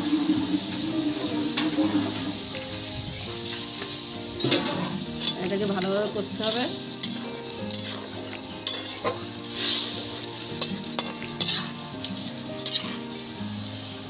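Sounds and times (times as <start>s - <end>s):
paste sizzling in hot oil: 0.0s - 14.0s
metal spatula scraping pan: 3.5s - 13.1s.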